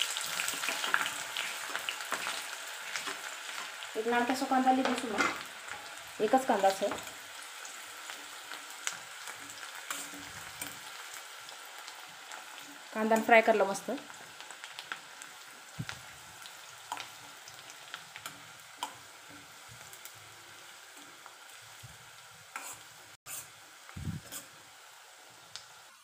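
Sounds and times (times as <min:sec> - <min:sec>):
onions sizzling in hot oil: 0:00.0 - 0:26.0
spoon scraping and tapping pan: 0:22.6 - 0:23.4.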